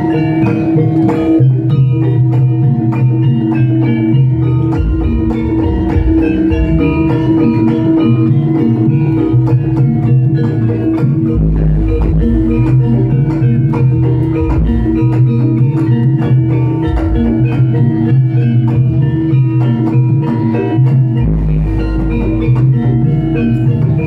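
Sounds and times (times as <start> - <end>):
held pitched melody notes: 0.0 - 24.0
steady drum strokes: 3.8 - 19.7
deep bass notes: 4.2 - 10.5, 11.2 - 19.4, 21.2 - 24.0.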